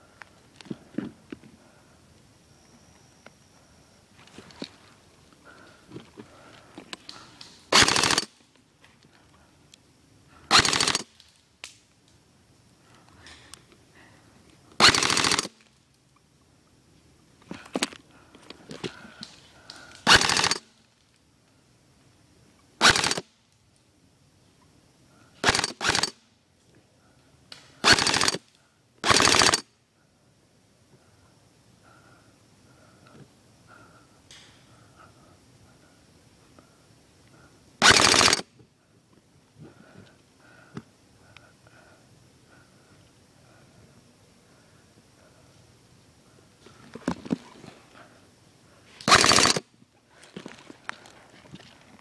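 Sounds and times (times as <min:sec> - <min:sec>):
airsoft rifle full-auto bursts: 0:07.7 - 0:08.4, 0:10.5 - 0:11.1, 0:14.8 - 0:15.6, 0:20.0 - 0:20.7, 0:22.8 - 0:23.3, 0:25.4 - 0:26.2, 0:27.8 - 0:29.7, 0:37.8 - 0:38.5, 0:49.0 - 0:49.7.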